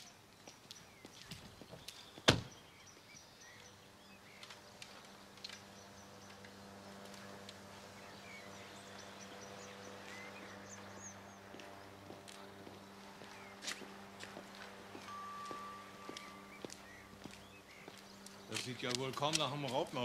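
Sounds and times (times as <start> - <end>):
low steady hum: 2.0 - 20.0
car door slamming: 2.3 - 2.5
faint bird chirps: 15.0 - 18.6.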